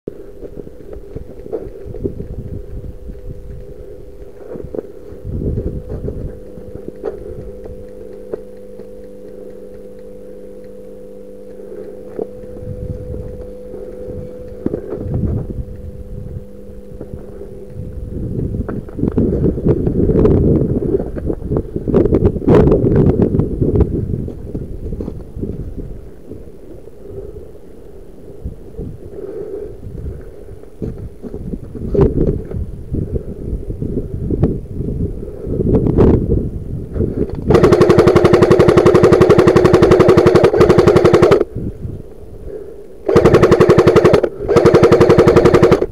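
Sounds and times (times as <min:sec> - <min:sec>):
steady machine hum: 0:00.1 - 0:45.9
wind rumble on microphone: 0:00.4 - 0:07.9, 0:12.3 - 0:37.7, 0:41.4 - 0:42.7
faint clicks: 0:05.5 - 0:15.9.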